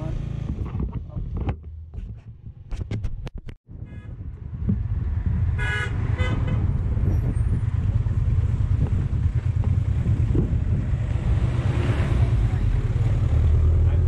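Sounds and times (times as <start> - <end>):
vehicle horn toots: 3.8 - 4.2, 5.6 - 6.7.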